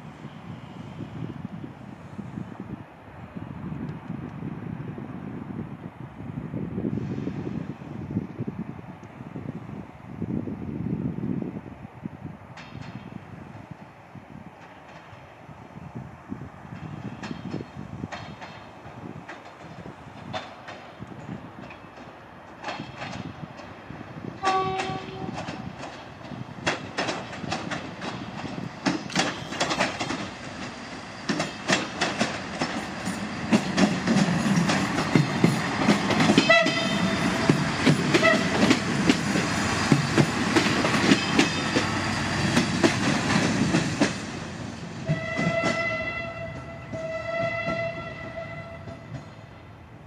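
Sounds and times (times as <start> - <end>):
train running noise: 0.0 - 50.0
wheels clacking over rail joints: 16.7 - 49.6
train horn toot: 24.4 - 25.6, 36.4 - 37.3, 38.1 - 38.7, 45.0 - 49.2.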